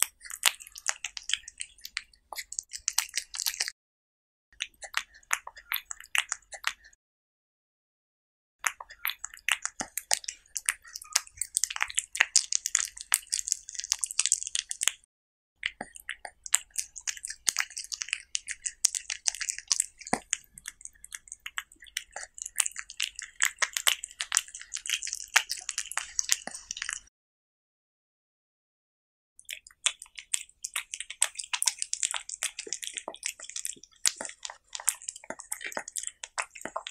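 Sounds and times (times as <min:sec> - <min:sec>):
cat chewing food: 0:00.0 - 0:03.8, 0:08.6 - 0:15.0, 0:15.6 - 0:27.1, 0:29.4 - 0:36.9.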